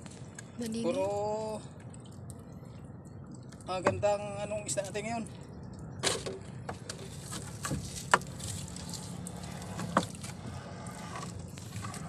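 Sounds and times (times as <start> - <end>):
water washing against canoe: 7.1 - 12.0.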